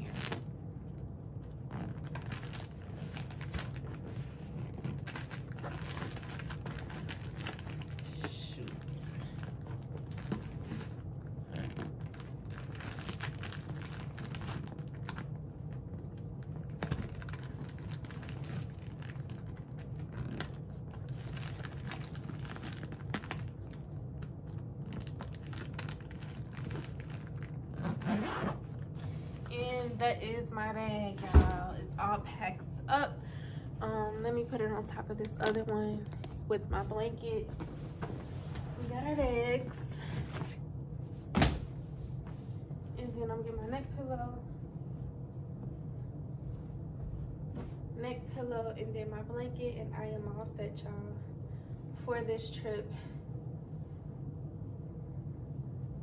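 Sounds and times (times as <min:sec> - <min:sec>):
steady low hum: 0:00.0 - 0:56.0
plastic bags rustling: 0:01.7 - 0:15.7, 0:16.4 - 0:29.5.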